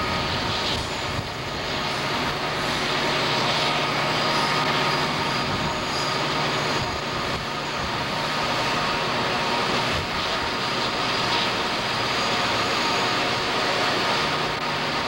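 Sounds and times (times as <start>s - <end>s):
locomotive engine hum: 0.0s - 15.0s
wheel and rail noise: 0.0s - 15.0s.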